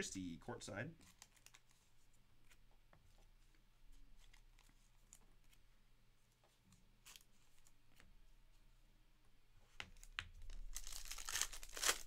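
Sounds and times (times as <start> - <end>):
trading cards rustling: 1.0 - 2.6, 10.0 - 12.0.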